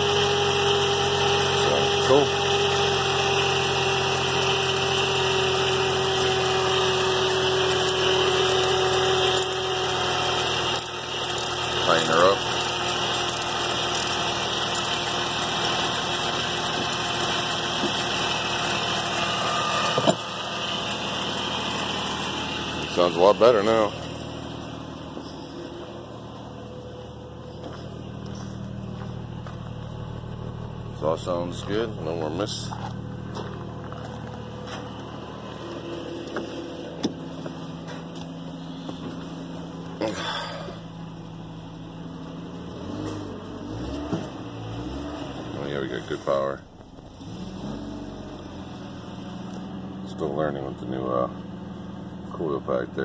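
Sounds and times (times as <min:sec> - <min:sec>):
car engine idling: 0:00.0 - 0:53.0
steady whine: 0:04.2 - 0:44.7.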